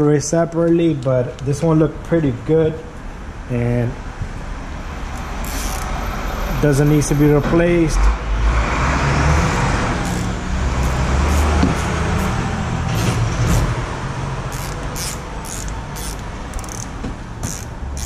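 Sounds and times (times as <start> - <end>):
hand ratchet clicking: 5.4 - 5.9, 10.0 - 12.4, 14.5 - 18.0.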